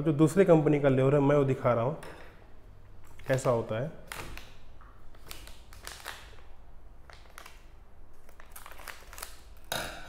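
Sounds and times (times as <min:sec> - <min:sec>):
foil sachet crinkling: 0:05.1 - 0:09.7.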